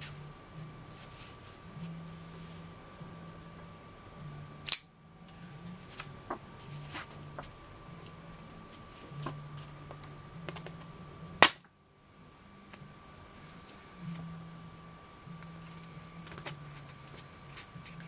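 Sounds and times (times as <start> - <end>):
folding knife blade snapping: 4.7 - 4.9.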